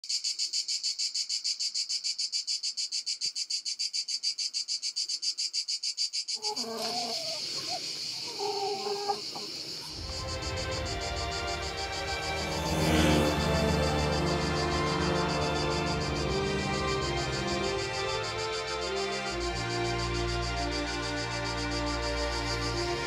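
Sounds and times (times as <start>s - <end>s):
insects chirping: 0.0s - 23.0s
hens clucking: 6.4s - 10.6s.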